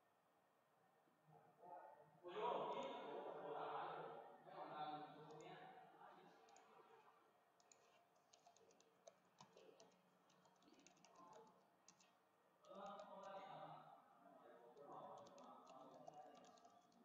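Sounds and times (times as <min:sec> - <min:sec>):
keyboard typing clicks: 0:06.3 - 0:06.8, 0:07.6 - 0:13.4, 0:14.8 - 0:17.0.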